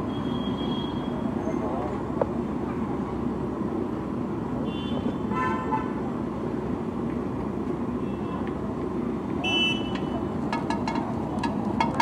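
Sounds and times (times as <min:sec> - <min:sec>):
street traffic: 0:00.0 - 0:12.0
vehicle horn honking: 0:09.4 - 0:10.2.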